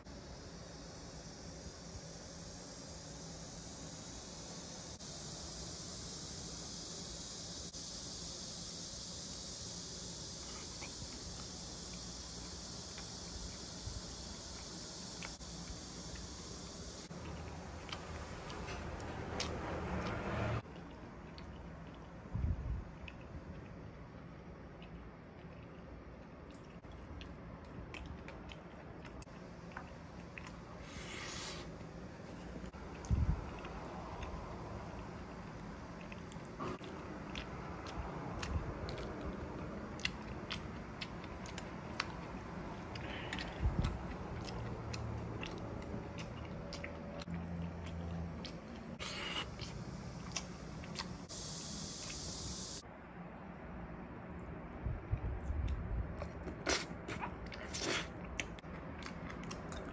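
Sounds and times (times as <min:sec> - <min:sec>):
quiet chewing: 0:10.3 - 0:16.4, 0:17.1 - 0:22.3, 0:22.9 - 0:51.4, 0:55.6 - 0:59.9.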